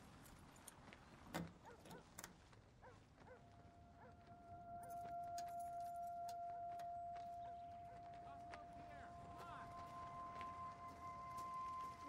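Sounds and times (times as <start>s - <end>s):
steady held tone: 4.3s - 12.0s.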